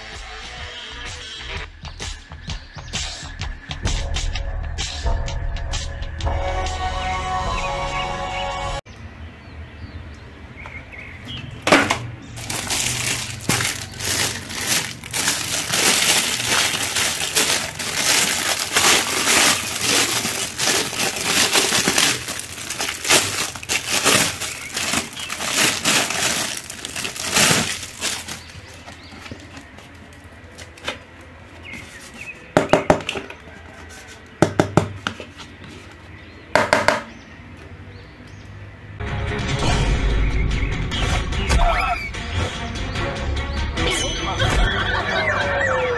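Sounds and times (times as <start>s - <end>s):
plastic bags crinkling: 12.4s - 31.0s.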